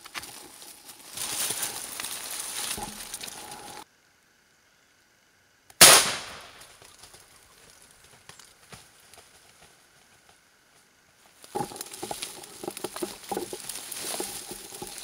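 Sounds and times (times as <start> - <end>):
rustling through undergrowth: 0.0 - 3.8, 6.5 - 15.0
loud shotgun shot: 5.8 - 6.6.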